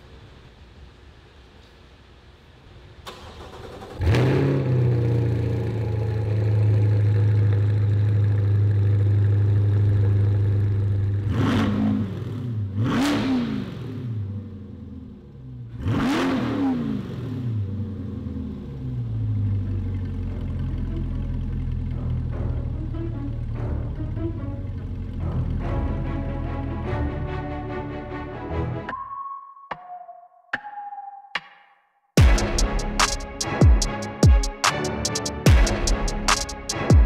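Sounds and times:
car engine idling: 0:03.1 - 0:11.3, 0:17.5 - 0:26.8
engine throttle revs: 0:03.1 - 0:27.3.

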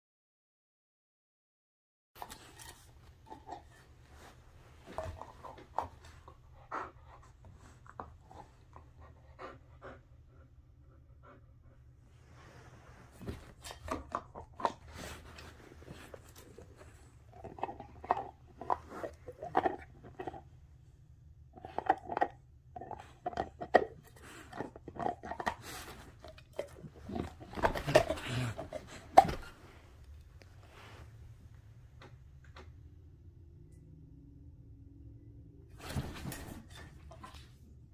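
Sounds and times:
dog chewing a hard toy: 0:21.6 - 0:29.5.

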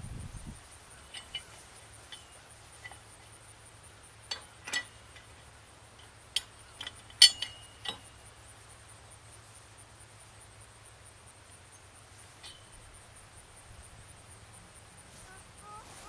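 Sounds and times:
pipe wrench clinking on steel pipe: 0:01.0 - 0:03.1, 0:04.3 - 0:05.4, 0:06.0 - 0:08.2, 0:12.4 - 0:12.8.

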